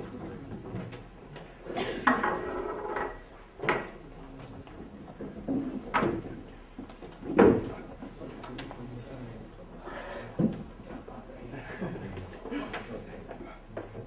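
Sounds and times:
objects clattering on a desk: 0.6 - 4.0, 5.2 - 7.8.

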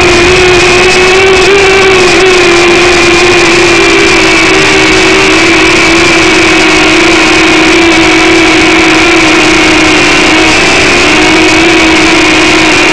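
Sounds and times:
toy drone motors whining: 0.0 - 12.9.

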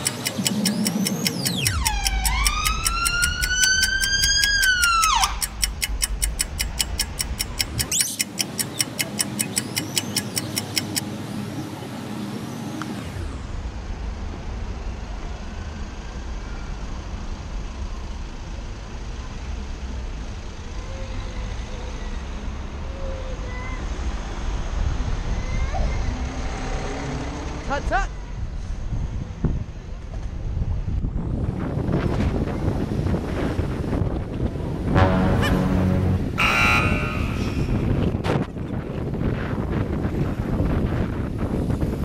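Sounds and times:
fast even ticking: 0.0 - 11.0
low rumble of traffic: 0.0 - 42.0
siren wailing: 1.4 - 5.4, 35.0 - 37.7.

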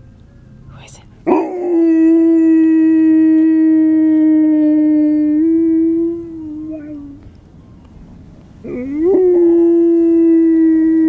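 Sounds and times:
husky howling: 1.3 - 7.2, 8.6 - 11.0.

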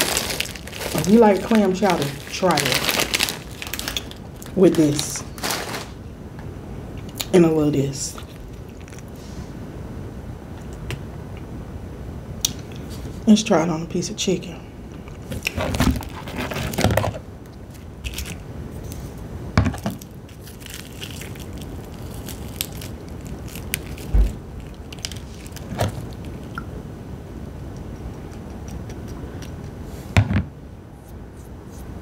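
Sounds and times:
fried chicken crackling and crunching: 0.0 - 6.0, 8.1 - 9.1, 15.2 - 19.2, 19.8 - 26.6
dull low thump: 24.1 - 24.5.

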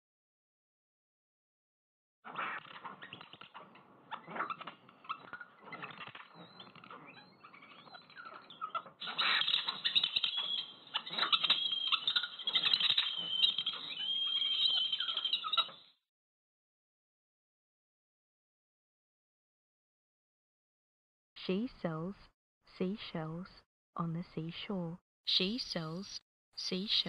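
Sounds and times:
birds chirping: 2.6 - 16.0.

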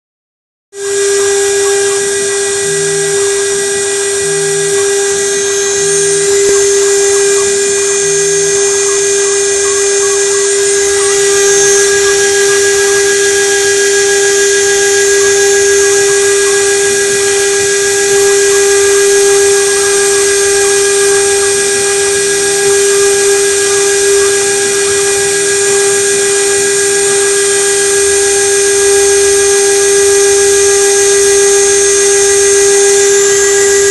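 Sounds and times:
router spindle whining: 0.8 - 33.9.

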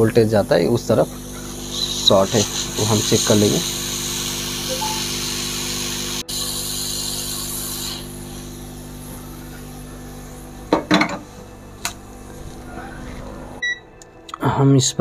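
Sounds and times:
hot air blower hissing: 0.0 - 13.6
fan hum: 0.0 - 14.1.

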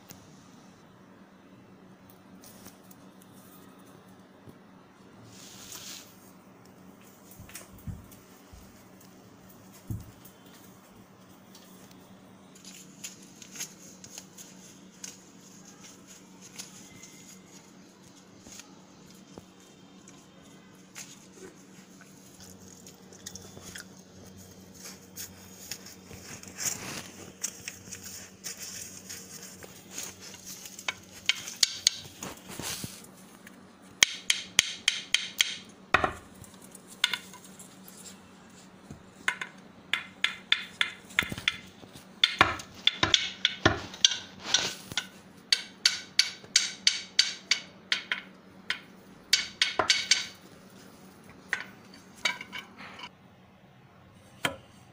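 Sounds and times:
stick knocking on tiled floor: 30.9 - 32.2, 34.0 - 36.3, 39.3 - 44.3, 44.9 - 50.4.

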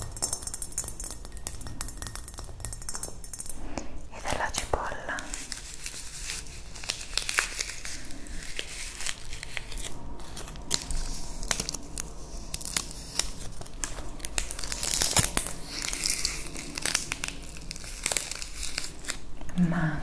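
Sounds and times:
onion skin crinkling and tearing: 5.3 - 19.5.

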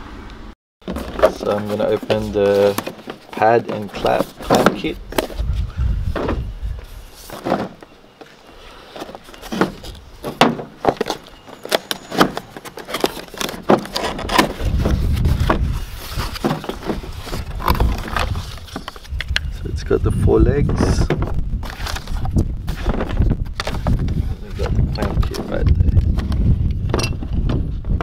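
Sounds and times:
cardboard box being opened: 0.9 - 5.5, 8.4 - 19.6, 21.6 - 26.3.

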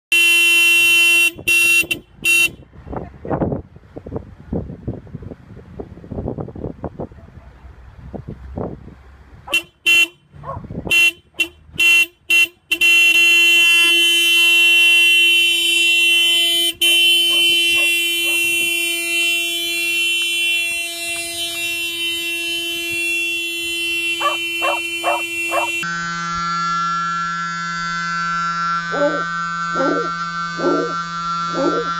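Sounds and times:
car horn tooting: 0.1 - 2.7, 9.5 - 31.9.

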